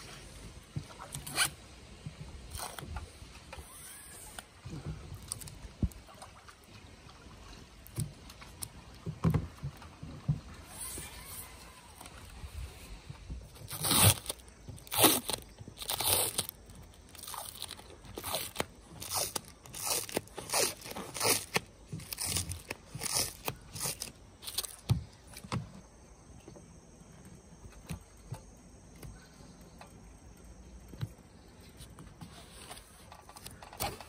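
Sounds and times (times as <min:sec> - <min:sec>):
tape peeling and crackling: 0:00.9 - 0:01.6, 0:02.4 - 0:06.0, 0:13.5 - 0:25.6.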